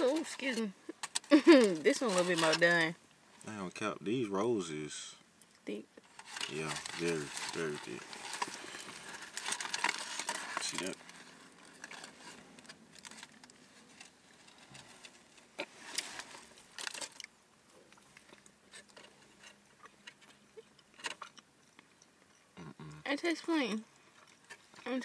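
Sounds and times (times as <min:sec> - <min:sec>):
foil wrapping crinkling: 0:00.0 - 0:02.9, 0:06.0 - 0:17.3
people chewing bread: 0:05.4 - 0:23.1, 0:23.8 - 0:24.9.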